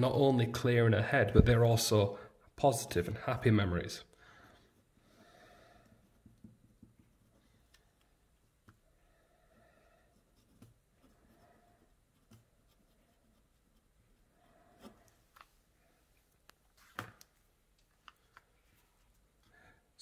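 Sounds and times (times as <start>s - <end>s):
pen scratching while writing: 6.0s - 8.8s, 10.1s - 15.1s.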